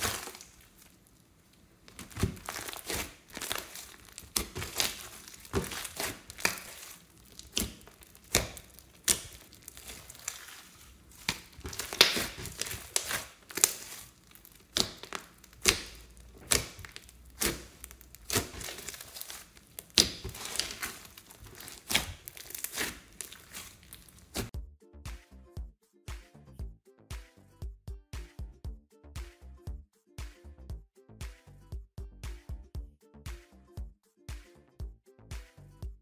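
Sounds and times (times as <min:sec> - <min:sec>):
slime clicking and popping: 0:00.0 - 0:01.0, 0:01.9 - 0:24.5
soft crinkling: 0:00.0 - 0:24.5.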